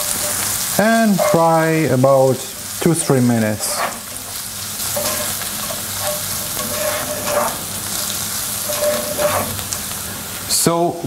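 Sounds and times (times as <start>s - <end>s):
spoon scraping a pan: 0.0s - 1.9s, 3.3s - 10.0s
onion sizzling in a pan: 0.0s - 11.0s.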